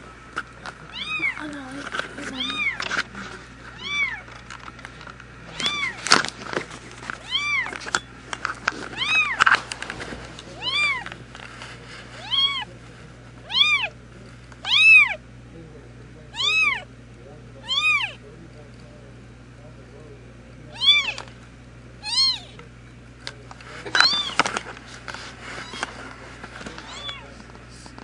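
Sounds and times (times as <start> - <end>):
sharp clicks and rustles: 0.3 - 12.1, 23.2 - 28.0
kitten mewing: 0.9 - 1.6, 2.2 - 4.3, 5.4 - 6.0, 7.2 - 7.7, 9.0 - 9.5, 10.6 - 11.1, 12.2 - 12.7, 13.4 - 14.0, 14.6 - 15.2, 16.3 - 16.9, 17.6 - 18.2, 20.7 - 21.3, 22.0 - 22.6, 23.9 - 24.4, 25.6 - 25.9, 26.8 - 27.4.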